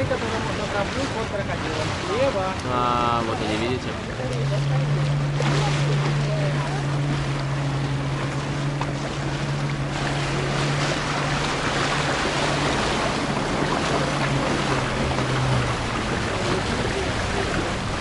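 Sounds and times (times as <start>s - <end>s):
motorboat engine humming: 0.0s - 18.0s
water splashing: 0.0s - 18.0s
wind on microphone: 5.4s - 18.0s.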